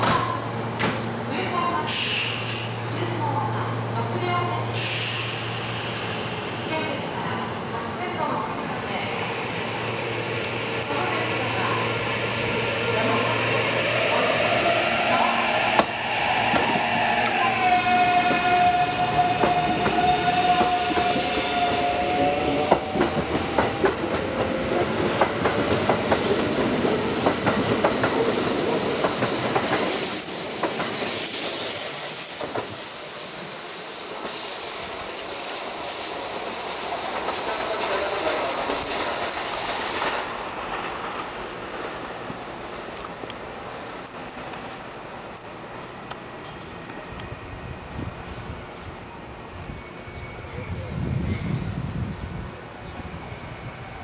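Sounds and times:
high wheel squeal: 0:04.8 - 0:07.6, 0:14.1 - 0:22.7, 0:26.9 - 0:32.2.

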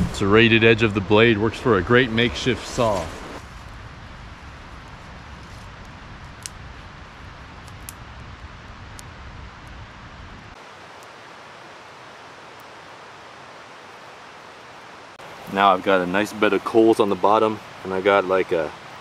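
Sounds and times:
low rumble: 0:00.0 - 0:10.6
fire crackling and hissing: 0:00.0 - 0:19.0.

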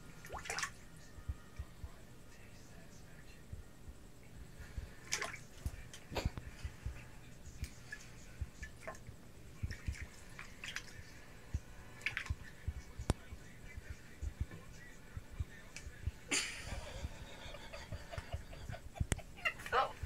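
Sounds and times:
water splashing and dripping: 0:00.2 - 0:00.8, 0:05.0 - 0:06.0, 0:07.6 - 0:11.1, 0:12.0 - 0:12.5.

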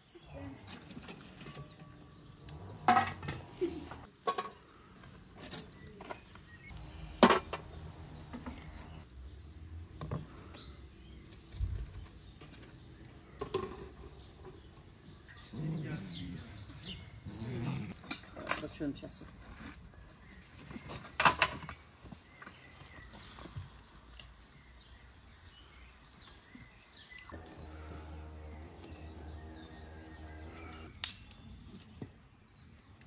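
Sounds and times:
metal lid and tongs clinking: 0:02.8 - 0:03.4
small birds chirping: 0:03.6 - 0:33.0.

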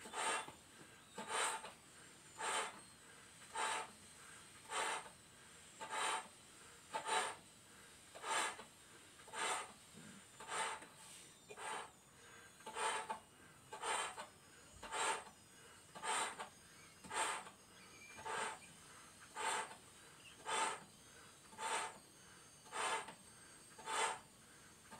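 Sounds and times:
person blowing up balloon: 0:00.0 - 0:00.5, 0:01.2 - 0:01.7, 0:02.4 - 0:02.8, 0:03.5 - 0:03.9, 0:04.7 - 0:05.1, 0:05.8 - 0:06.3, 0:07.0 - 0:07.4, 0:08.2 - 0:08.6, 0:09.3 - 0:09.7, 0:10.4 - 0:10.8, 0:11.6 - 0:11.9, 0:12.7 - 0:13.1, 0:13.8 - 0:14.2, 0:14.8 - 0:15.2, 0:16.0 - 0:16.4, 0:17.1 - 0:17.5, 0:18.2 - 0:18.6, 0:19.4 - 0:19.8, 0:20.4 - 0:20.8, 0:21.6 - 0:21.9, 0:22.7 - 0:23.1, 0:23.8 - 0:24.2.

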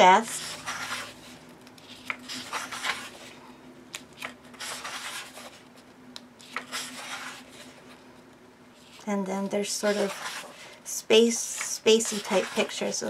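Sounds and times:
paper pages turning: 0:00.2 - 0:08.0, 0:09.8 - 0:10.7, 0:11.5 - 0:13.0.

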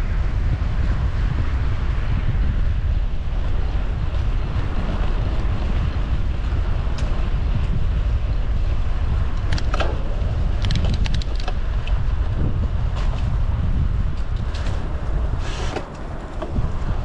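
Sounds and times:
road and tyre noise: 0:00.0 - 0:17.0
wind buffeting microphone: 0:00.0 - 0:17.0.

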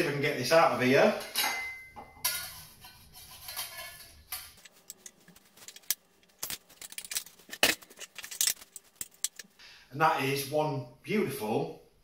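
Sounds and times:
dish clinking against plate: 0:01.2 - 0:04.6
knife scraping pie dish: 0:02.3 - 0:05.0.

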